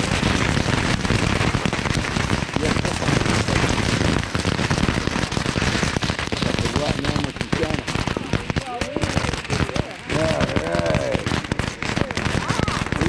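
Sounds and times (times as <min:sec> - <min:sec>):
fireworks crackling: 0:00.0 - 0:13.0.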